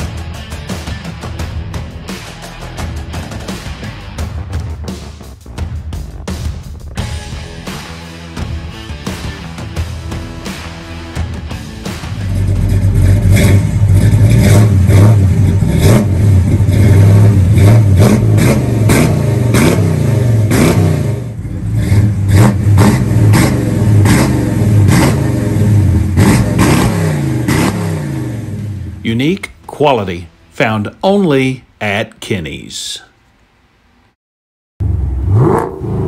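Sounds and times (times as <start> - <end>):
car engine revving: 4.8 - 29.1, 34.8 - 36.0.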